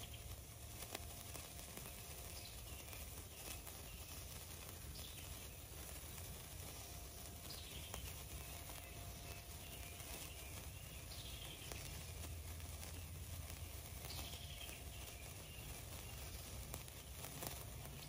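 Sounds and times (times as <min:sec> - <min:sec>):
small pops: 0:00.0 - 0:18.0
sparkler fizzing crackle: 0:00.0 - 0:18.0
bird call: 0:06.7 - 0:18.0.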